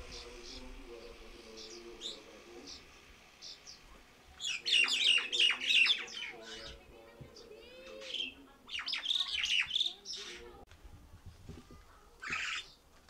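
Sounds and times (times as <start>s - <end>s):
whistled bird notes: 0.0s - 6.8s, 7.4s - 10.4s
birds harsh chattering: 0.0s - 10.7s, 12.2s - 12.9s.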